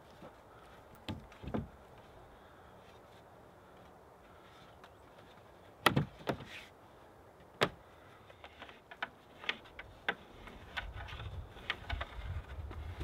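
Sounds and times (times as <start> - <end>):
low rumbling rustle: 8.4 - 13.0.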